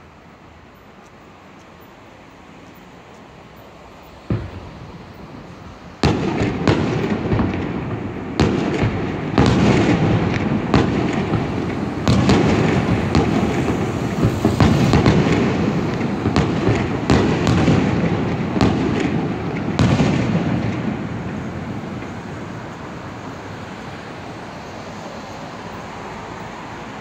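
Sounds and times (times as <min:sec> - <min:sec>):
continuous rumble: 0:00.0 - 0:27.0
fireworks bangs: 0:04.2 - 0:23.8.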